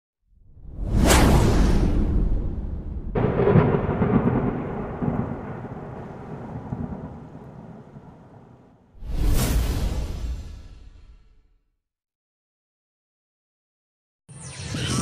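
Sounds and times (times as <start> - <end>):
thunder clap and rumble: 0.7 - 9.2.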